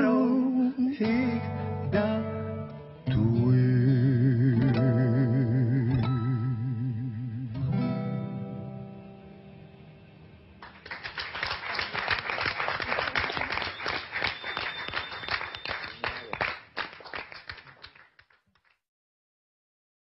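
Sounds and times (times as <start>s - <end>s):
guitar chord ringing: 1.2s - 10.4s
audience applause: 10.6s - 18.8s.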